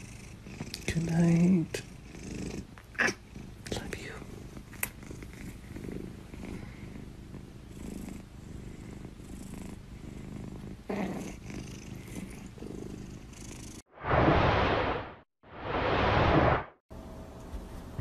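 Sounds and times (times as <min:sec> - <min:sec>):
cat purring: 0:00.0 - 0:13.8.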